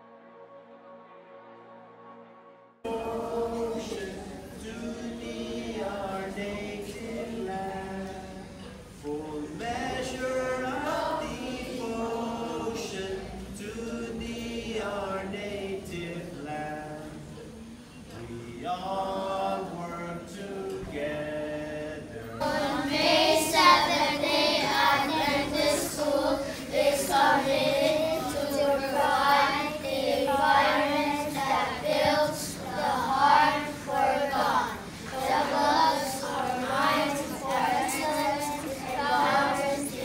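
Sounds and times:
children singing: 2.9s - 16.2s, 22.4s - 40.0s.

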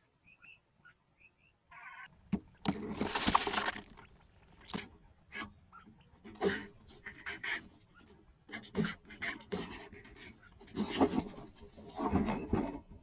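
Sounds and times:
birds scratching on dry soil: 2.6s - 5.6s, 6.2s - 12.9s.

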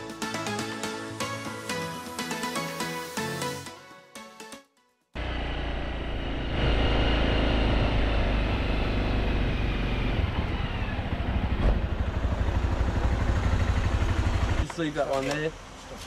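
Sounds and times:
small motorbike engine running: 5.2s - 14.7s.

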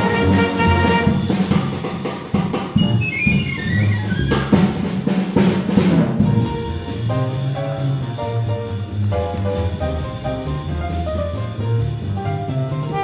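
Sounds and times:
horns playing together: 0.0s - 1.4s
bass: 0.0s - 13.0s
drum fill: 0.0s - 13.0s.

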